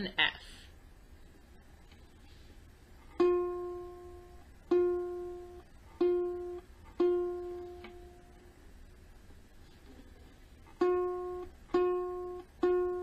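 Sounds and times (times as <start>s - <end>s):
ukulele string plucked: 3.2s - 8.3s, 10.7s - 13.0s.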